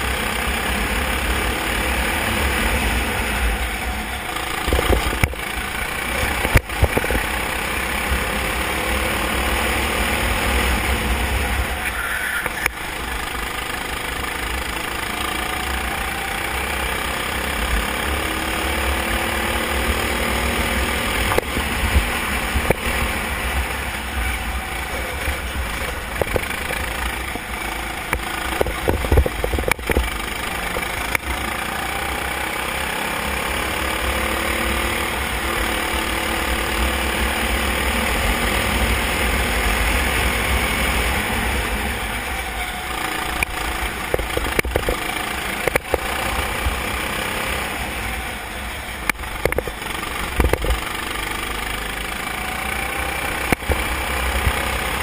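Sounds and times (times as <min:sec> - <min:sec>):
racing kart engine at speed: 0:00.0 - 0:55.0.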